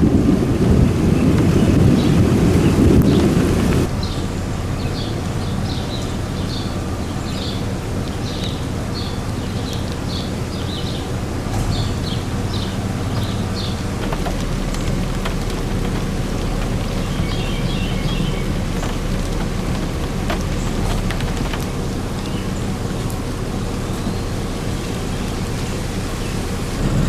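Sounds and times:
outdoor background noise: 0.0s - 27.0s
wind rumble on microphone: 0.0s - 27.0s
bird chirping: 1.2s - 21.2s.

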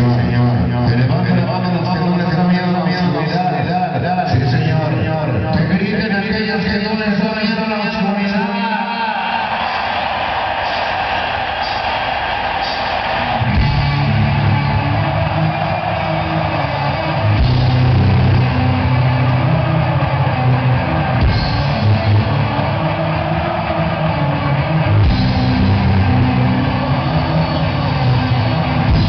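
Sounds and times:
loud rock music: 9.4s - 29.0s
heavy bass notes: 13.0s - 29.0s.

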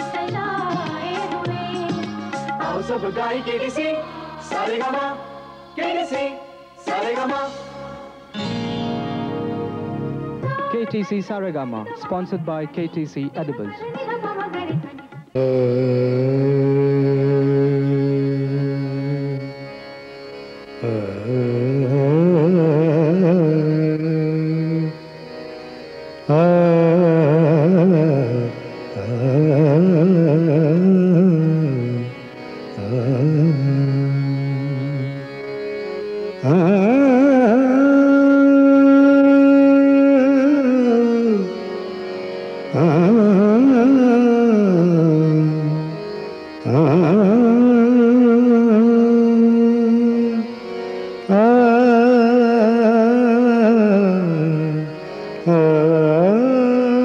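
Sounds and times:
man singing classical phrases: 10.6s - 13.8s, 15.3s - 19.7s, 20.8s - 25.0s, 26.3s - 32.2s, 32.8s - 35.2s, 36.4s - 41.8s, 42.7s - 50.6s, 51.2s - 57.0s.

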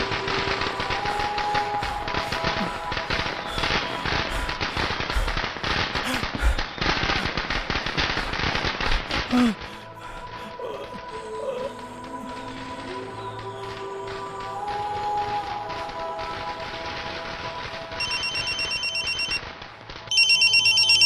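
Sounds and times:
musical drone: 0.0s - 5.3s, 9.2s - 21.0s
gunfire-like cracks: 2.4s - 9.4s.

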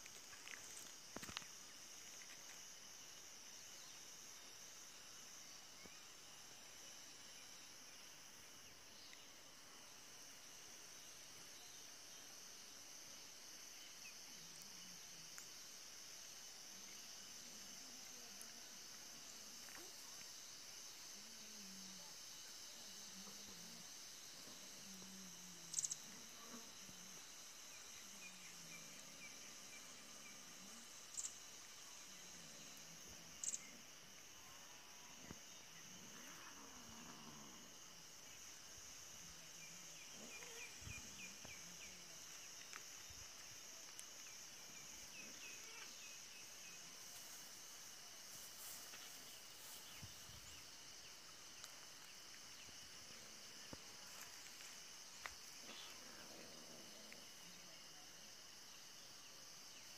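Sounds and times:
high-pitched insect buzz: 24.8s - 27.0s, 33.4s - 33.8s.

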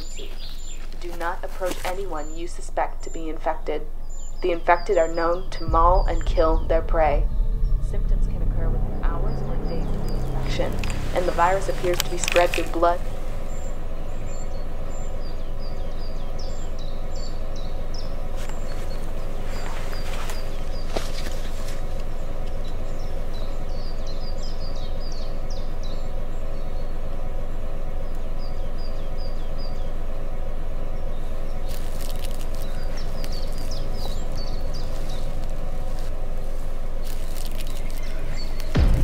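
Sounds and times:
small birds chirping: 0.0s - 39.0s
steady low rumble: 0.0s - 39.0s.

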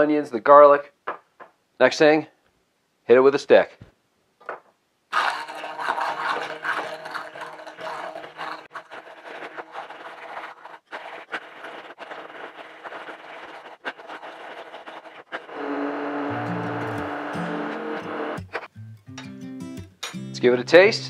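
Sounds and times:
immersion blender running: 5.2s - 8.7s, 15.5s - 18.4s.

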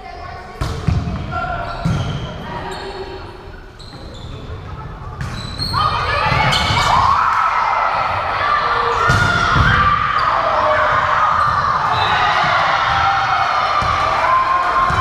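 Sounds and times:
crowd voices echoing: 0.0s - 15.0s
sneakers squeaking on hardwood court: 0.6s - 6.9s, 11.3s - 12.2s.

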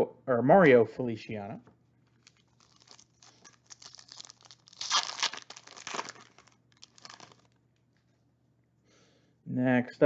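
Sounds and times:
foil wrapper crinkling and tearing: 2.1s - 7.6s.

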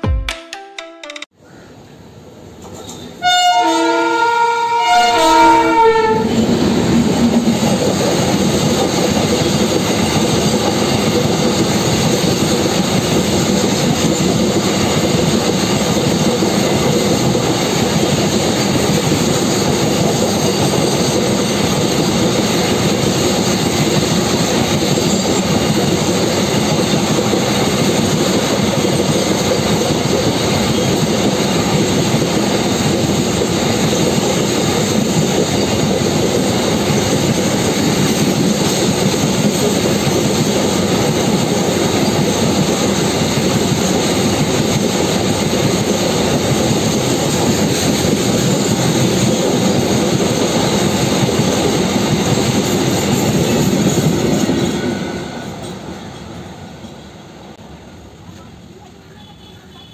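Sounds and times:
freight train rumbling past: 2.0s - 59.3s
train horn blasts: 3.2s - 6.4s.

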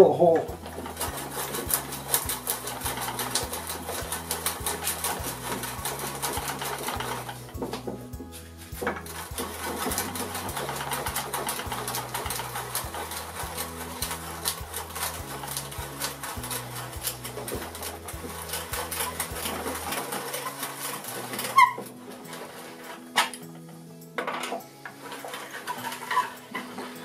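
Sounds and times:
auger bit rasping through wood: 0.0s - 23.4s, 24.8s - 27.0s
background music low notes: 0.0s - 27.0s.

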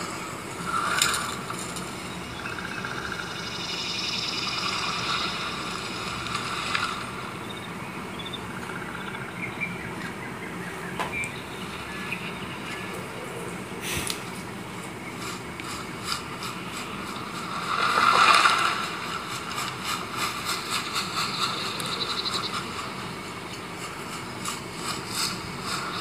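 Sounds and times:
laptop speakers hiss: 0.0s - 9.4s, 11.0s - 26.0s.

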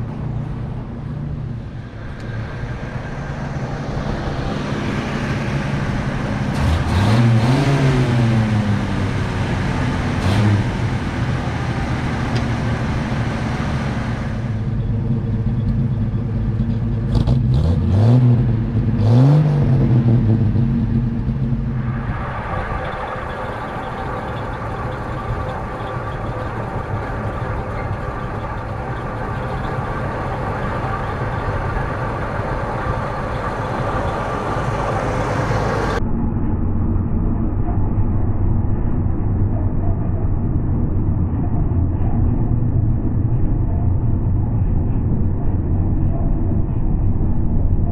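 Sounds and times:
truck engine revving and idling: 0.0s - 36.0s.

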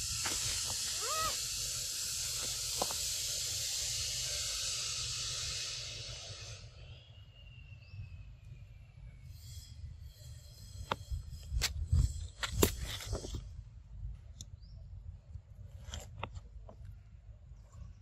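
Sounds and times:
steady high hiss: 0.0s - 11.5s
monkey squeaky call: 0.9s - 1.4s.

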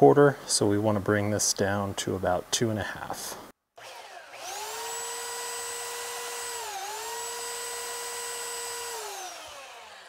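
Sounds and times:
belt sander whining: 3.8s - 10.0s.

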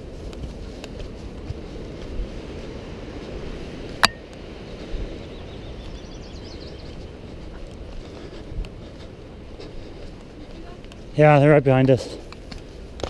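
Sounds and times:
footsteps on dirt trail: 0.0s - 13.0s
faint bird chirps: 5.1s - 7.1s.

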